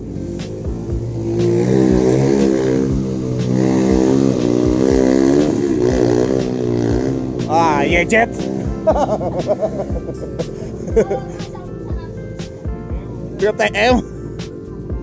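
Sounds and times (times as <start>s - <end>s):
small motorcycle engine: 0.0s - 11.6s.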